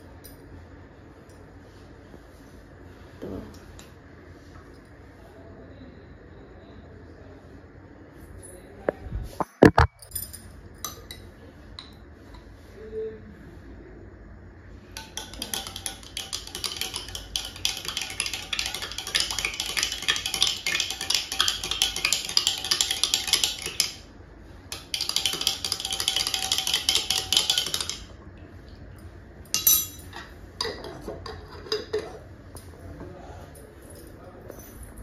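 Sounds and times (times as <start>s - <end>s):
spoon clinking in a drink: 15.0s - 24.0s, 24.8s - 28.1s.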